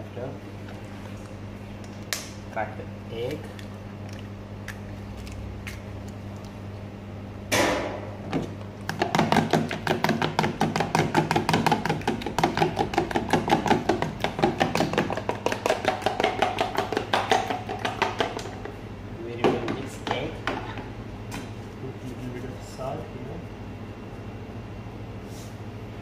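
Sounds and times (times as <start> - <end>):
low steady hum: 0.0 - 26.0
egg beaten in plastic tub: 8.8 - 18.8.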